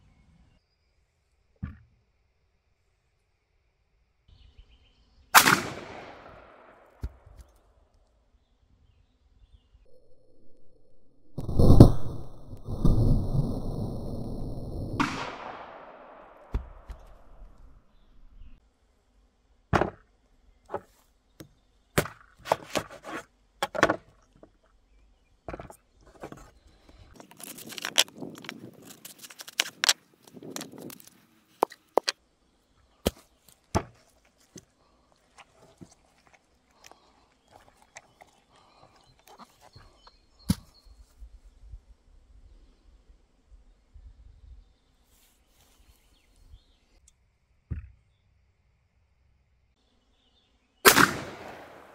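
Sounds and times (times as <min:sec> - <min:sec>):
rustling and scraping: 0:22.3 - 0:23.3, 0:25.5 - 0:32.2, 0:33.1 - 0:41.2.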